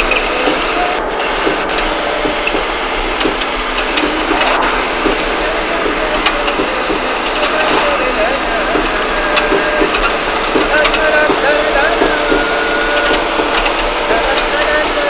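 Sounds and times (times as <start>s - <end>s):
vehicle rushing noise: 0.0s - 11.1s.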